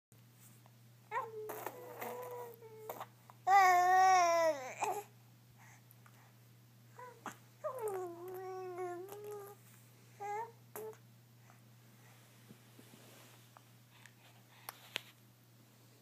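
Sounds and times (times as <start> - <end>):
baby babbling: 1.1 - 5.1, 7.0 - 9.6, 10.2 - 11.0
baby blowing raspberries: 1.4 - 3.0.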